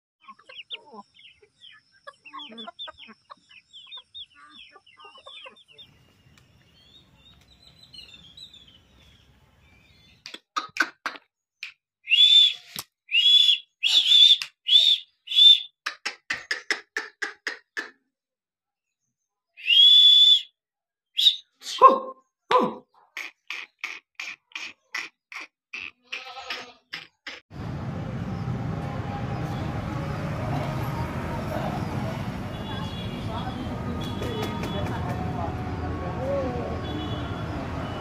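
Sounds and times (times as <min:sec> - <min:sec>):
birds chirping: 0:00.2 - 0:10.4, 0:21.1 - 0:38.0
high whistle-like bird calls: 0:12.0 - 0:15.8, 0:19.6 - 0:22.1.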